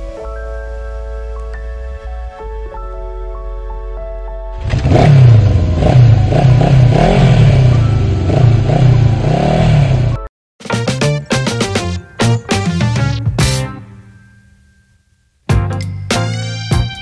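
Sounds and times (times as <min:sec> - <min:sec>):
music with keyboard notes: 0:00.0 - 0:08.5, 0:10.1 - 0:17.0
engine revving: 0:04.5 - 0:10.3.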